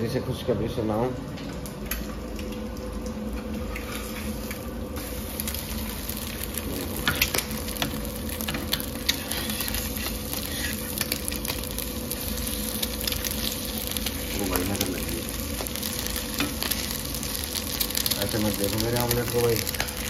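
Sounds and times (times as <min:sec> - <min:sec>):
omelette sizzling in a frying pan: 0:03.2 - 0:20.0
metal spatula scraping a pan: 0:09.1 - 0:11.0.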